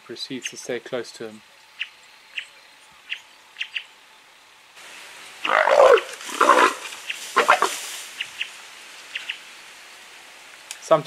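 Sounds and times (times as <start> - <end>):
leopard snarling: 5.4 - 7.9.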